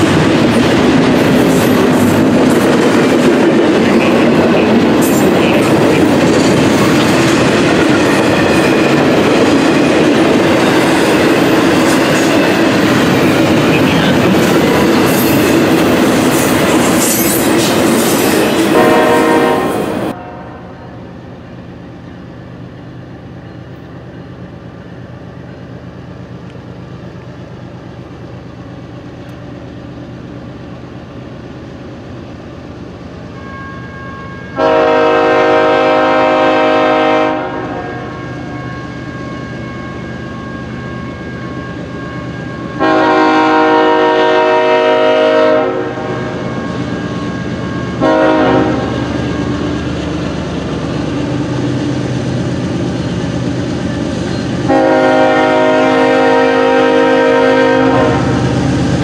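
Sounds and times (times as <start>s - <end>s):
locomotive engine rumble: 0.0s - 20.2s
locomotive air horn blasts: 18.7s - 21.0s, 33.4s - 38.4s, 42.8s - 46.4s, 47.9s - 48.9s, 54.6s - 58.4s.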